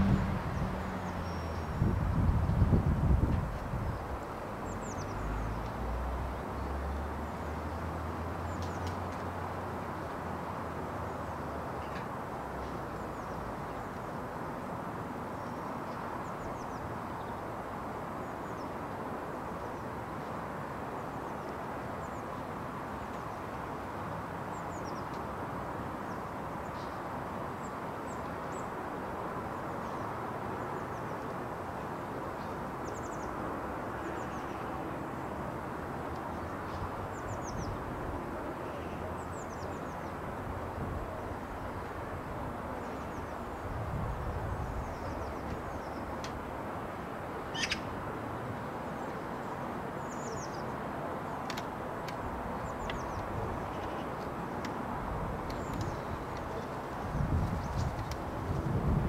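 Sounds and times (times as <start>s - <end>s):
outdoor background noise: 0.0s - 59.0s
high bird chirps: 47.5s - 47.8s.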